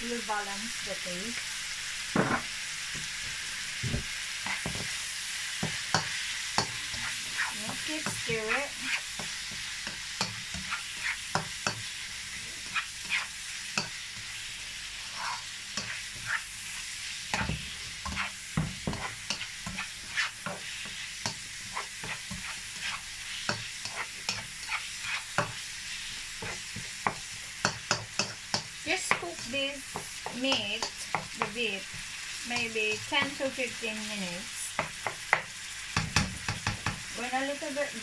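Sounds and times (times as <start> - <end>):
meat and onion sizzling in pan: 0.0 - 38.0
spatula scraping pan: 4.4 - 5.0, 5.6 - 33.6.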